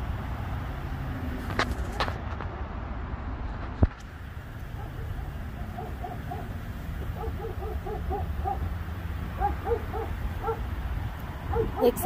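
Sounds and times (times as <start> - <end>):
muffled dog barking: 4.7 - 10.7, 11.4 - 11.9.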